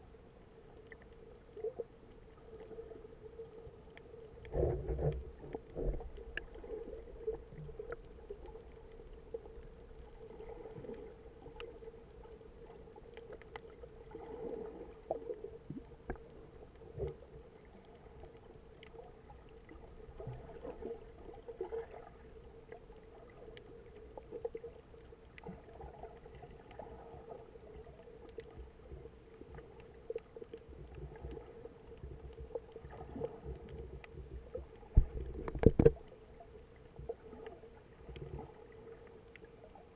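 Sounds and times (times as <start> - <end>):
soft water swells: 0.0 - 39.9
underwater low hum: 0.0 - 39.9
faint clicks: 3.3 - 10.1, 10.7 - 13.9, 15.0 - 20.7, 22.6 - 39.8.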